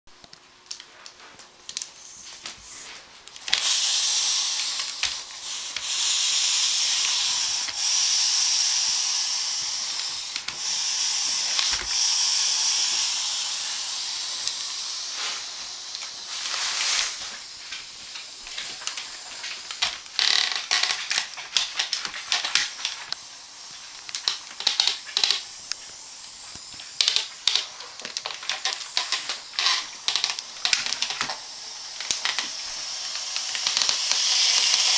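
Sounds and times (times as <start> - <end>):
steam mop hissing: 2.0 - 34.9
mop head clicking on wooden floor: 24.1 - 25.4.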